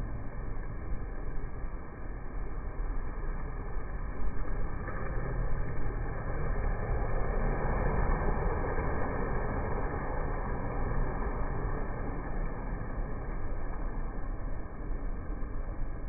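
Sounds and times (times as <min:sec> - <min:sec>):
wind rumbling on microphone: 0:00.0 - 0:16.0
sea waves washing: 0:04.2 - 0:15.6.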